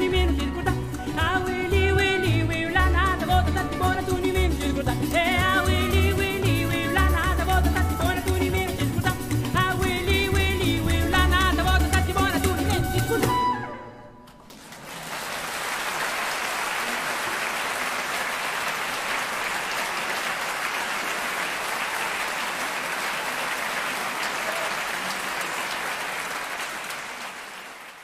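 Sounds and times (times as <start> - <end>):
audience applauding: 14.4 - 28.0.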